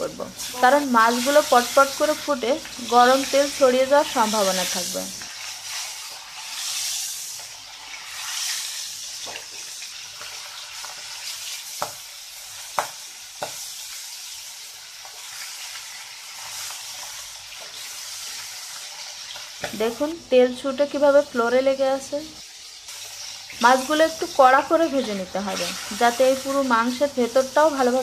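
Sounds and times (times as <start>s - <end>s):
fish frying in hot oil: 0.0s - 28.0s.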